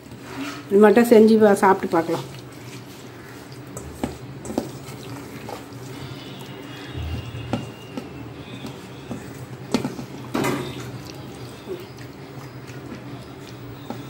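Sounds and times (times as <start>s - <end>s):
hand kneading wet food: 0.0s - 14.0s
steady low hum: 7.0s - 8.4s.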